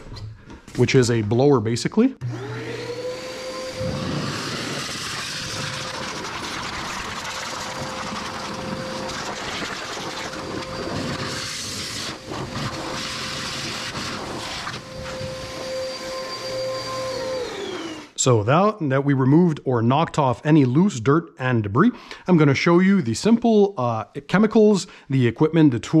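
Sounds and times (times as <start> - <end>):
blower motor whine: 2.2 - 18.2.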